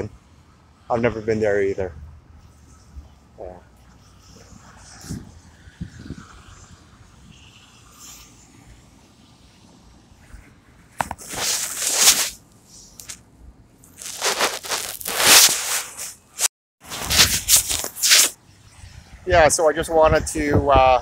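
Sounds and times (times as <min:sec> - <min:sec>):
microphone rubbing against fabric: 0:03.9 - 0:08.5, 0:10.2 - 0:13.2, 0:13.9 - 0:19.2.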